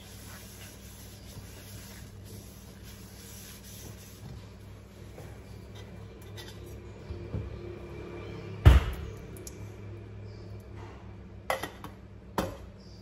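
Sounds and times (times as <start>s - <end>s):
paper towel rubbing a pan: 0.0s - 6.0s.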